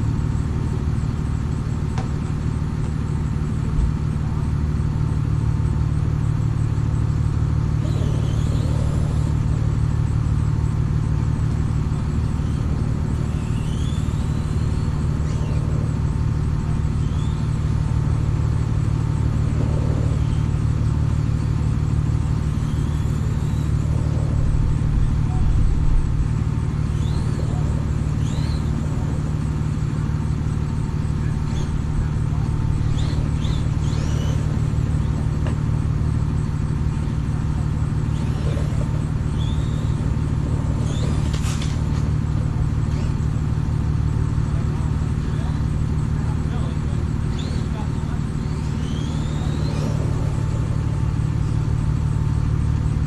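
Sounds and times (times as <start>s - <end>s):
truck engine running: 0.0s - 53.0s
bird chirps: 7.8s - 9.6s, 12.3s - 17.8s, 22.2s - 24.4s, 26.8s - 30.1s, 31.0s - 35.2s, 38.1s - 42.0s, 46.5s - 51.6s.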